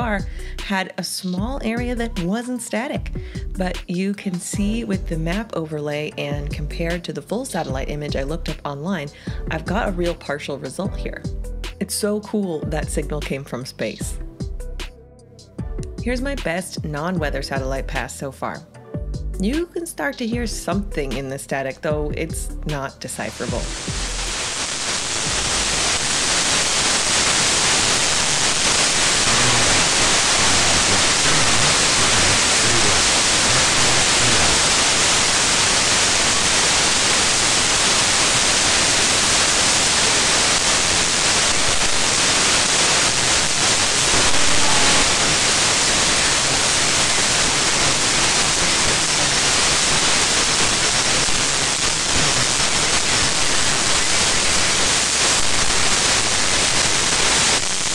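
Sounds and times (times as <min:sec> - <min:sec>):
radio static hiss: 0:23.3 - 0:57.9.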